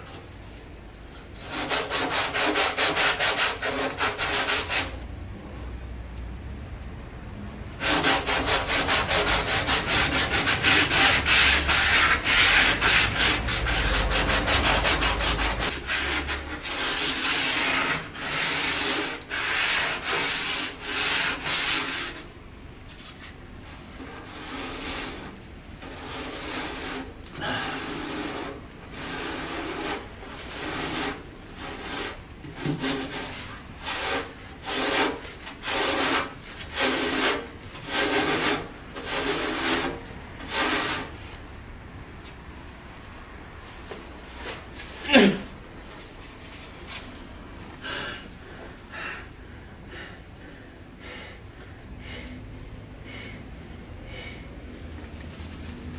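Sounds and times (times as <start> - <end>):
brush scrubbing rusty metal: 1.3 - 5.0, 7.8 - 22.3, 22.9 - 41.4.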